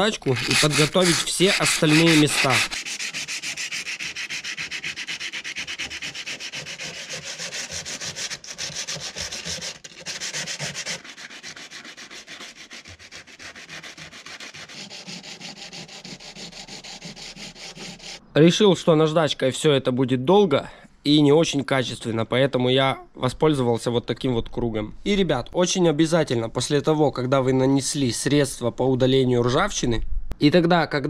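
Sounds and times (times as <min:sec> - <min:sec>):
sandpaper rubbing on metal: 0:00.0 - 0:18.2.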